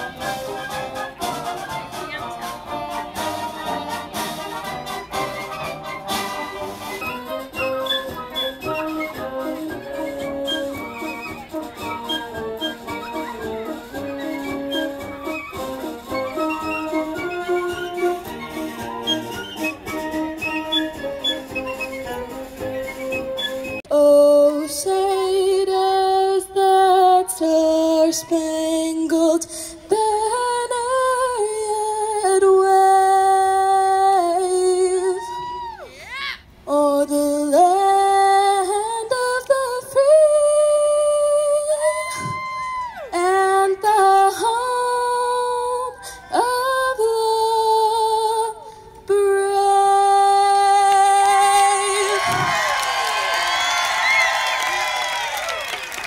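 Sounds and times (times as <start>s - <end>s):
woman singing through a pa: 23.9s - 35.8s, 36.6s - 52.6s.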